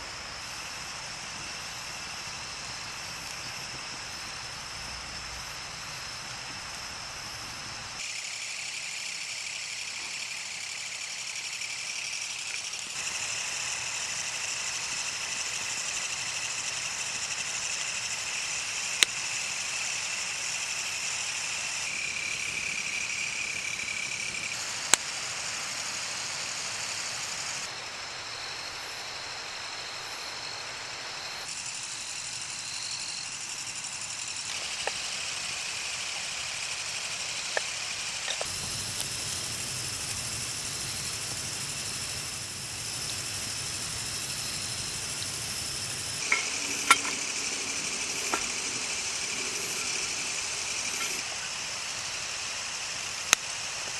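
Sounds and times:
night insects chorus: 0.0 - 53.9
campfire popping: 1.0 - 7.3, 37.3 - 51.3.

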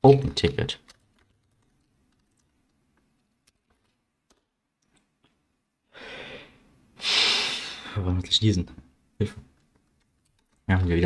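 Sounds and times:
keyboard keystrokes: 0.8 - 4.5, 9.5 - 10.7
breathy hiss: 5.9 - 8.0.

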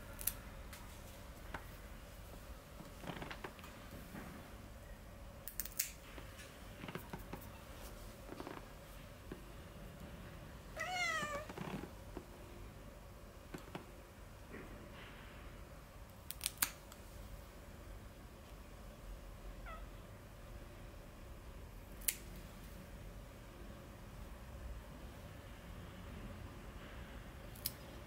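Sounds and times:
cat meowing: 10.8 - 11.6, 19.6 - 20.0.

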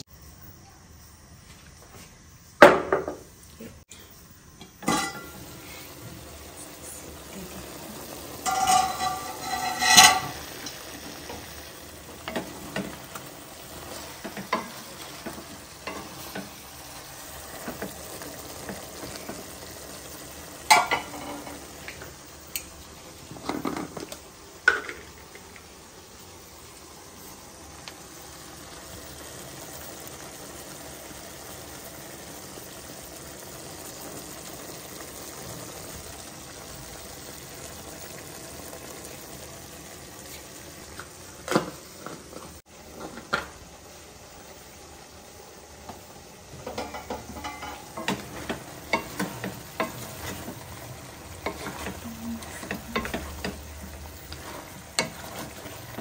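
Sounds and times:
meat sizzling in a pan: 4.4 - 56.0
spatula scraping pan: 8.3 - 11.5, 46.7 - 56.0.

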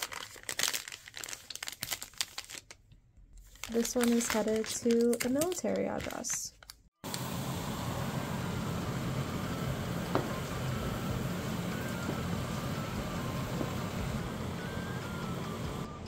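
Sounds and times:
water boiling in a pot: 7.0 - 15.9.

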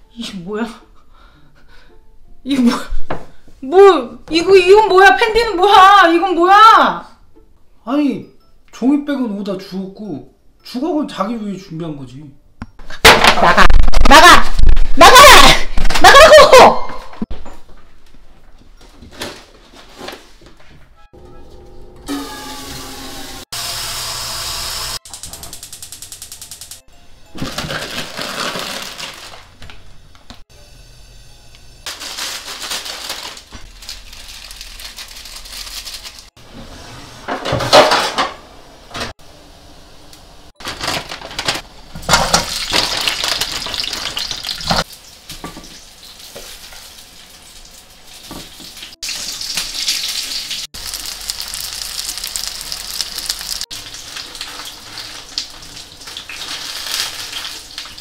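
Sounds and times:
plastic bags rustling: 27.4 - 30.0, 31.9 - 36.3, 40.6 - 44.8, 50.8 - 58.0
pots and pans clattering: 37.2 - 38.4, 40.6 - 45.8
oil sizzling in a frying pan: 42.4 - 58.0.

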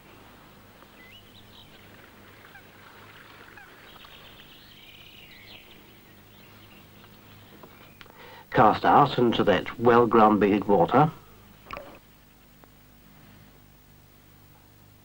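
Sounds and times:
low steady hum: 0.0 - 15.0
birds chirping and twittering: 0.7 - 9.2.

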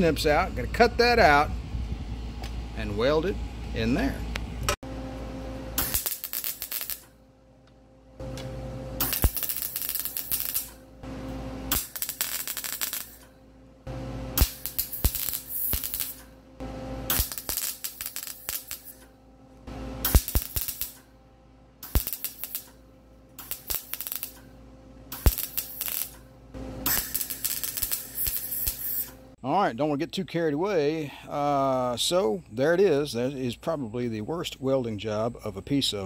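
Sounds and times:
welder arc crackling: 5.8 - 7.2, 9.0 - 10.8, 11.7 - 13.3, 14.3 - 16.4, 17.1 - 21.1, 21.8 - 22.8, 23.4 - 24.5, 25.1 - 29.2.

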